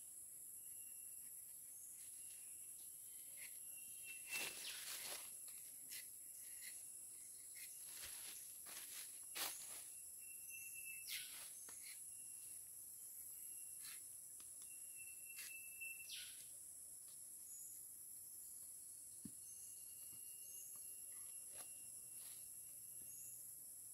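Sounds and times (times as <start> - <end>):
insects droning: 0.0 - 23.9
knife scratching tree bark: 3.2 - 4.4, 5.4 - 8.1, 11.1 - 12.1
thin whistling tone: 3.4 - 4.9, 10.2 - 12.5, 14.6 - 16.4.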